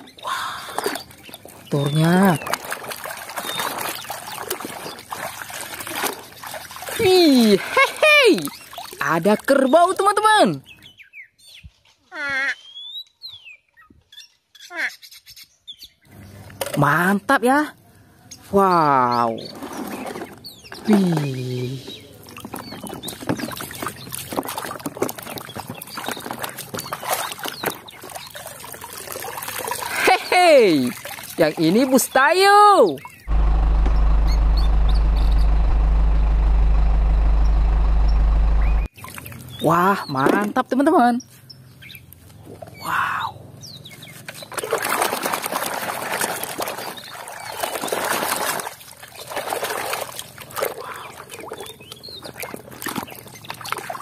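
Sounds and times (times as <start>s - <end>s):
water sloshing in a plastic basin: 0.0s - 10.2s, 19.2s - 33.5s, 38.9s - 40.6s, 44.1s - 54.0s.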